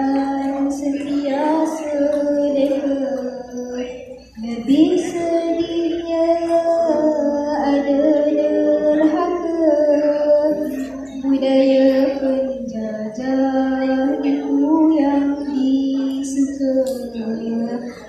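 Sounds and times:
young woman chanting a sung poem: 0.0 - 18.0.

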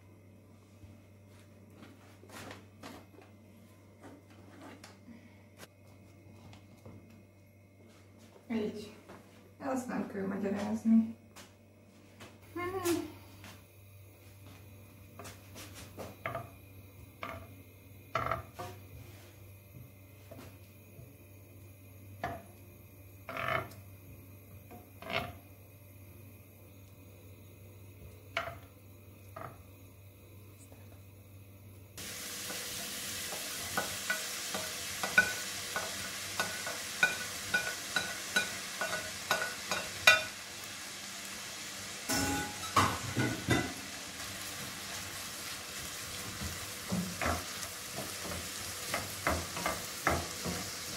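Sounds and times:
vegetables sizzling in a frying pan: 16.2 - 18.9, 21.8 - 25.4, 32.0 - 50.9
wooden spoon knocking in metal pan: 46.9 - 50.7.

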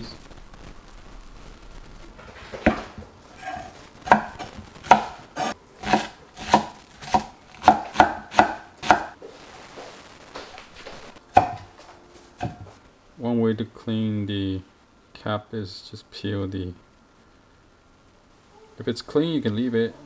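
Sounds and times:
knife chopping on wooden board: 2.6 - 9.1, 11.4 - 11.7, 12.4 - 12.7.

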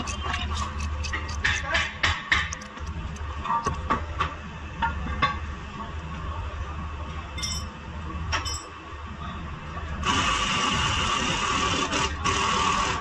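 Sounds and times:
metallic clinks of tools on brake parts: 7.4 - 8.8.

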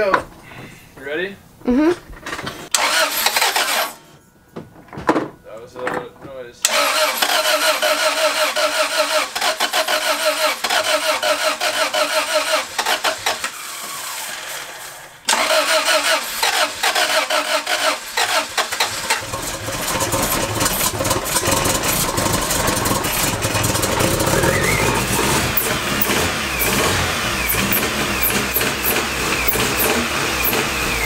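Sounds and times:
starter cranking engine: 2.7 - 4.0, 6.6 - 31.0
car engine revving: 6.6 - 31.0.

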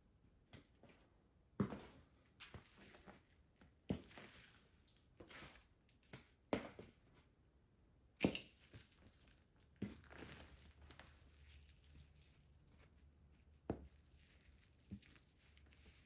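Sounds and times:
food squishing underfoot: 8.4 - 16.0.

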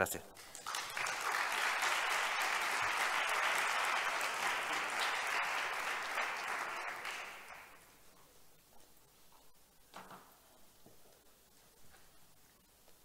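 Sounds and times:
audience applauding: 0.4 - 7.9.

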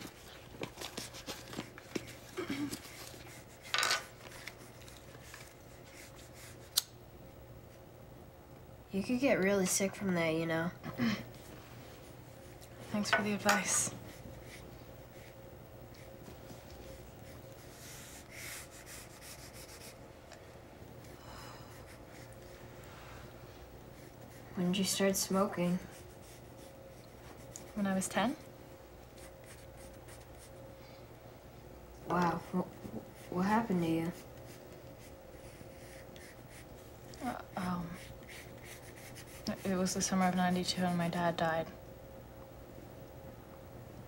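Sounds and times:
pencil drawing on paper: 17.6 - 20.0, 23.9 - 28.0, 35.0 - 36.7, 37.6 - 41.0.

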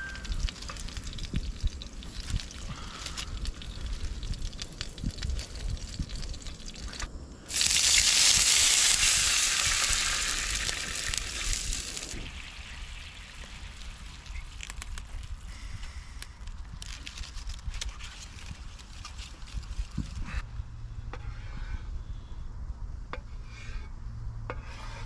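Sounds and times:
liquid sizzling in hot pan: 7.5 - 14.4.

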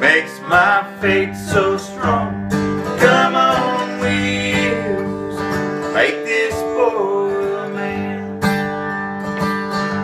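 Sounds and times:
acoustic guitar strumming: 0.0 - 10.0
person singing long notes: 3.0 - 8.4.

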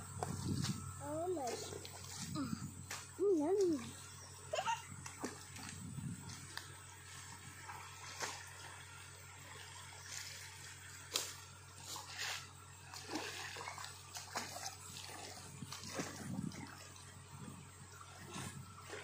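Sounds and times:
water splashing and dripping: 7.1 - 17.2.

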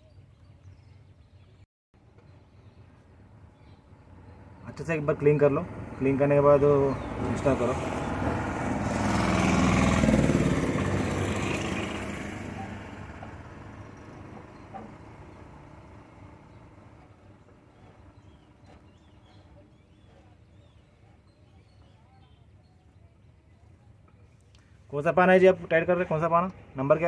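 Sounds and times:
motor vehicle passing by: 3.8 - 20.1.

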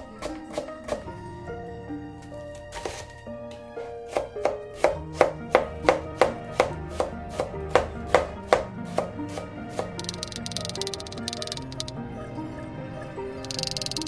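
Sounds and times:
soft background music: 0.0 - 14.0
knife chopping on cutting board: 4.1 - 9.9.

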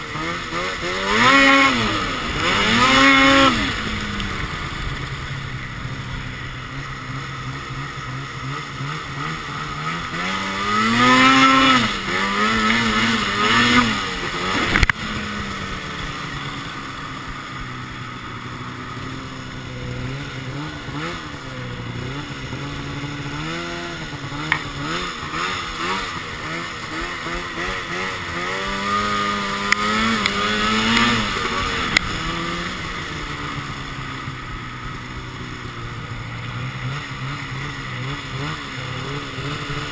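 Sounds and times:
snowmobile engine revving: 0.0 - 39.9
sharp tick: 4.1 - 4.3, 29.7 - 31.1.

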